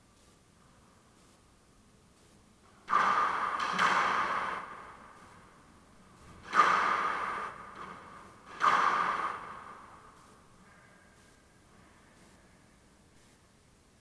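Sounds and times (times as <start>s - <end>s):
squash ball hits: 2.8s - 10.4s.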